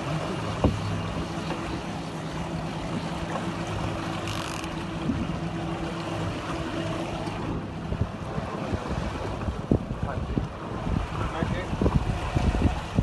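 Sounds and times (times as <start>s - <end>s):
boat engine running: 0.0s - 13.0s
wind and water rushing: 0.0s - 13.0s.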